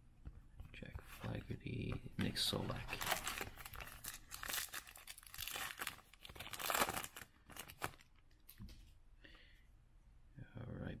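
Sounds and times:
foil wrapper tearing and crinkling: 0:02.9 - 0:08.2.

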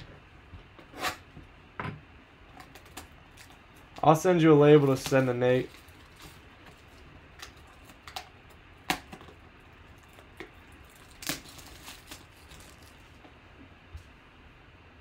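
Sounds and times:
plastic shrink wrap crinkling: 0:02.6 - 0:08.3, 0:09.9 - 0:13.2.

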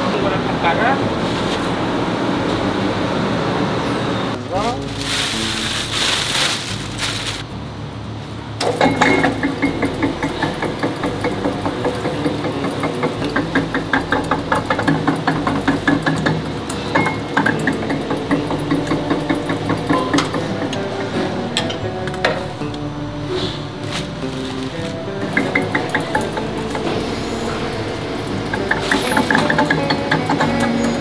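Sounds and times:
machine hum: 0:05.0 - 0:31.0
rapid clicking and rattling: 0:08.6 - 0:20.4.

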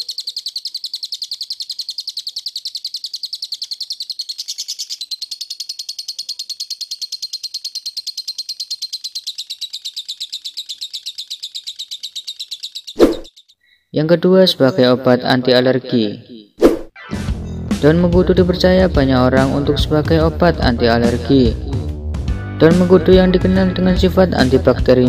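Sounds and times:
lovebird chattering trill: 0:00.0 - 0:13.9.

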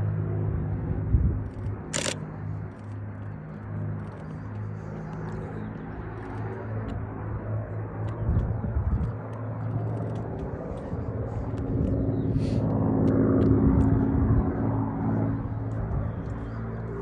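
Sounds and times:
piston aircraft engine droning: 0:00.0 - 0:17.0
sharp click: 0:01.5 - 0:02.2.

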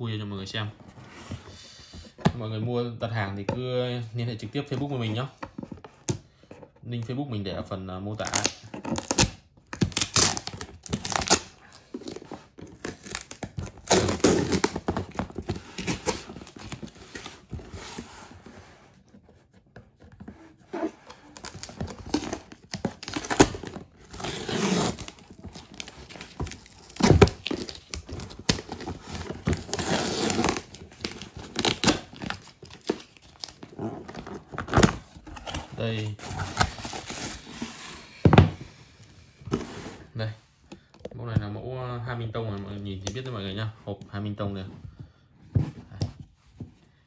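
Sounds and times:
packing tape ripping off box: 0:08.2 - 0:11.6, 0:12.7 - 0:17.2, 0:21.3 - 0:33.6.

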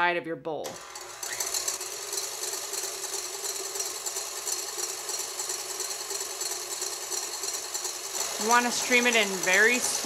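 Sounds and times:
stand mixer motor whining: 0:00.7 - 0:10.0
wire whisk beating egg whites: 0:01.0 - 0:10.0.

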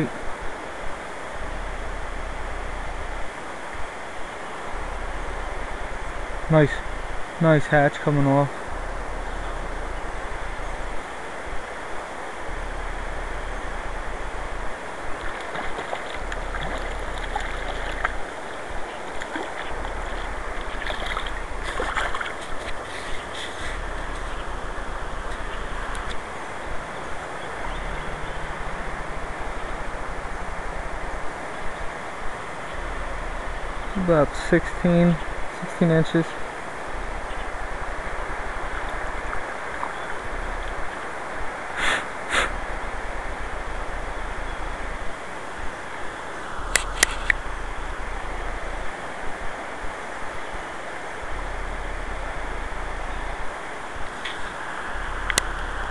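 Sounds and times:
river current rushing: 0:00.0 - 0:55.9
wind on microphone: 0:08.3 - 0:35.6, 0:36.3 - 0:55.9
short breathy hisses: 0:41.8 - 0:42.6.

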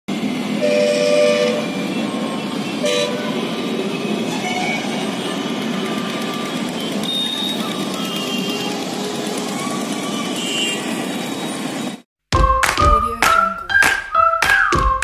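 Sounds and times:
road traffic noise: 0:00.1 - 0:12.1
horn honking: 0:00.6 - 0:09.0, 0:10.1 - 0:11.1.

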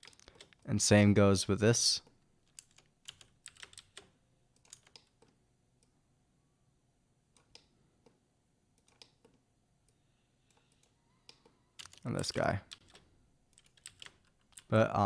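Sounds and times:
computer keyboard clicks: 0:02.5 - 0:05.3, 0:10.5 - 0:12.0, 0:13.6 - 0:14.7.

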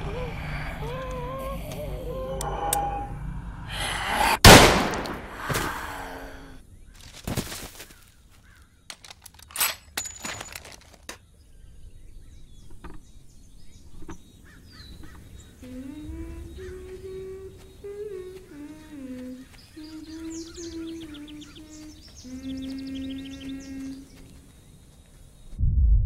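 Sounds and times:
person humming a tune: 0:00.0 - 0:04.0, 0:15.6 - 0:24.4
rifle shot echoing: 0:04.4 - 0:05.4.

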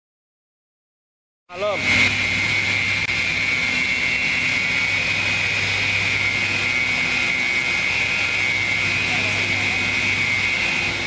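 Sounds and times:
woodworking machine whining: 0:01.5 - 0:11.0.

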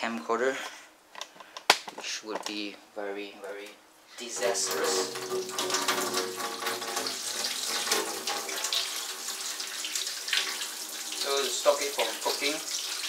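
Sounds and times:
tap water splashing into sink: 0:04.4 - 0:13.0.

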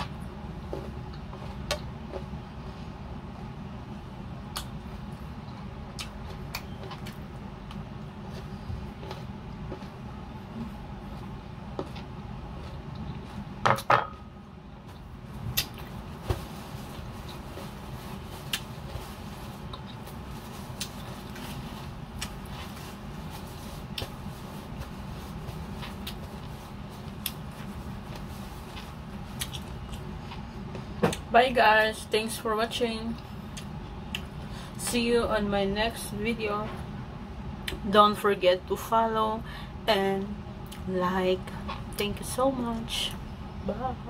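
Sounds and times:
low background hum: 0:00.0 - 0:44.0.

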